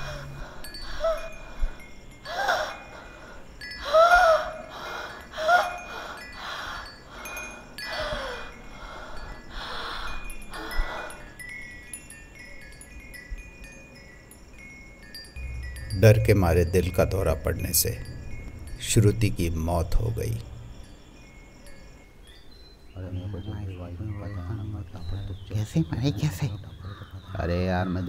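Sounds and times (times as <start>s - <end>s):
woman moaning: 0.0s - 11.3s
woman gasping and wheezing: 0.0s - 11.4s
wind chimes tinkling: 0.0s - 28.0s.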